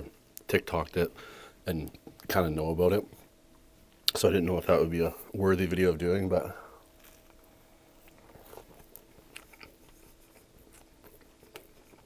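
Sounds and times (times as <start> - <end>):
chewing sandwich: 6.8 - 12.0.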